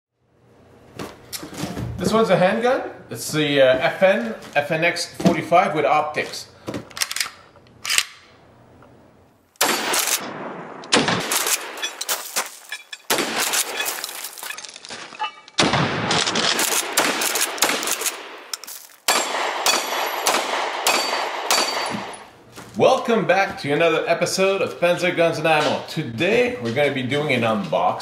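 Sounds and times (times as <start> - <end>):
rapid gunshots: 9.6 - 11.9, 13.1 - 14.0, 15.6 - 18.5, 19.1 - 22.1.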